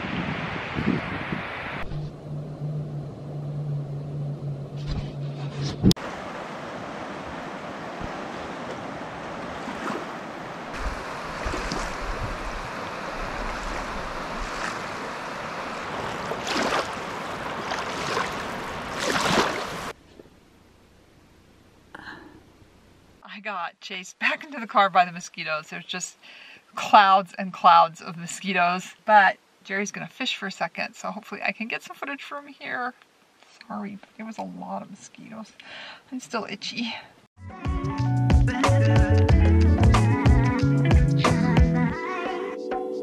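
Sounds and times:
river rushing over rocks: 6.0s - 20.0s.

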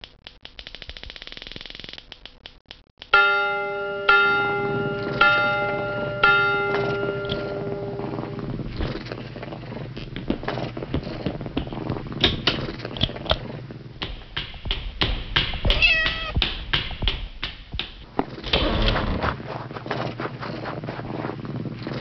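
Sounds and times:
knocks and clicks: 10.2s - 19.1s
cat meowing: 15.7s - 16.4s.

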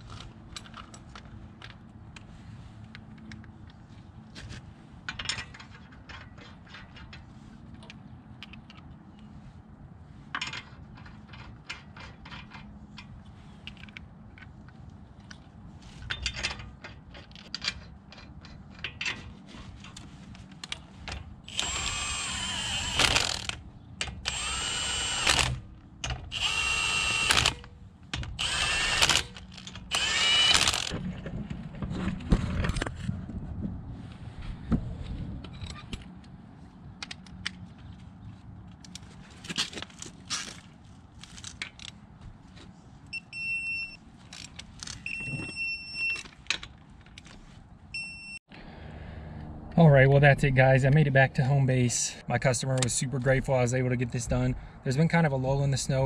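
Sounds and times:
cordless power tool whirring: 21.5s - 23.6s, 24.2s - 25.6s, 26.3s - 27.6s, 28.3s - 31.0s.

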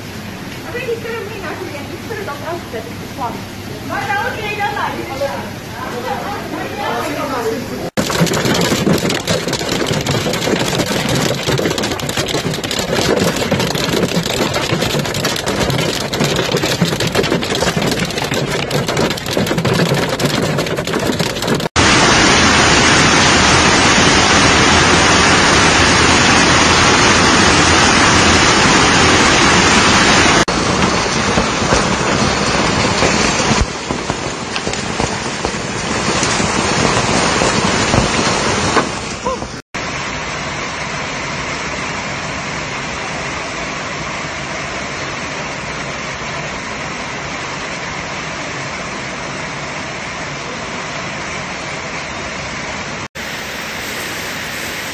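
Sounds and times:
heavy hail and rain pelting: 7.9s - 39.6s.

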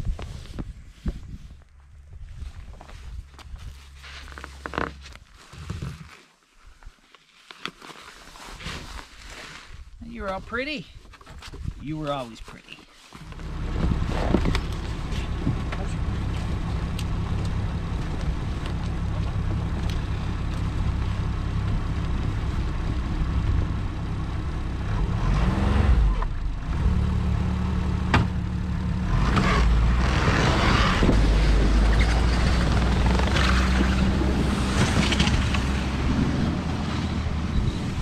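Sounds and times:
snowmobile engine idling and revving: 2.2s - 6.0s, 13.2s - 38.0s.

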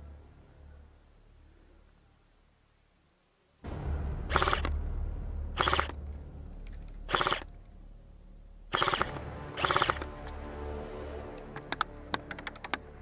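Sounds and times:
airsoft rifle firing bursts: 4.3s - 4.7s, 5.6s - 6.0s, 7.1s - 7.5s, 8.7s - 10.2s.

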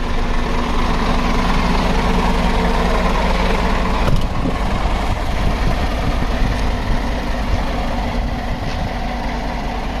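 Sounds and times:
truck diesel engine idling: 0.0s - 10.0s.

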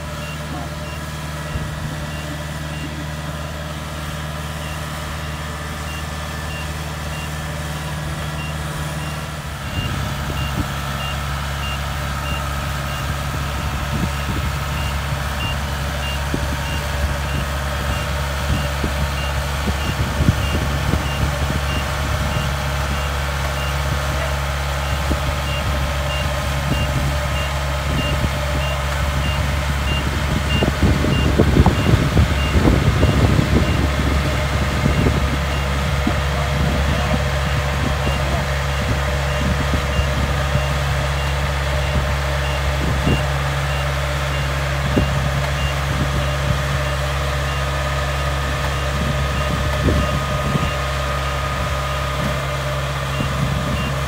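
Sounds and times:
high reversing alarm beeps: 0.0s - 7.4s, 8.4s - 23.9s, 24.8s - 33.9s, 36.9s - 45.9s, 53.1s - 54.0s
combine harvester engine running: 0.0s - 54.0s.

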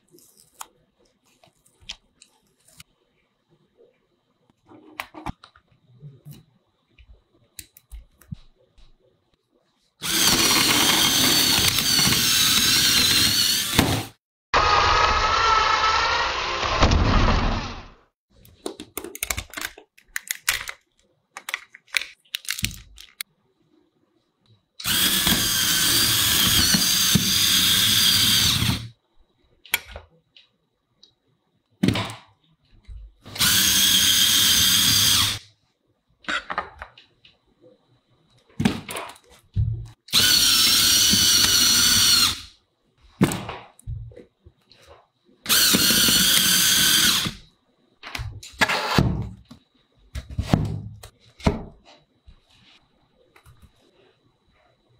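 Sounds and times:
small electric motors whining: 10.0s - 17.8s, 24.8s - 29.0s, 33.3s - 35.4s, 40.1s - 42.5s, 45.5s - 47.4s.

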